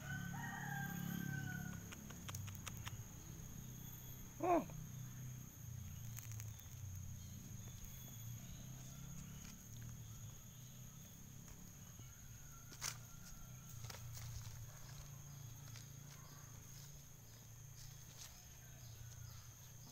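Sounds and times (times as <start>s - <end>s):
footsteps on dry leaves: 12.7s - 19.0s.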